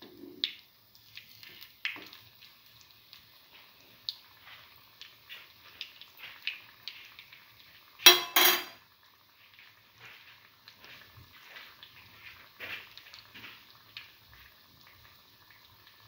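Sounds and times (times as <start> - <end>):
oil crackling and popping: 0.0 - 8.1, 8.8 - 16.0
metallic clatters: 8.1 - 8.8.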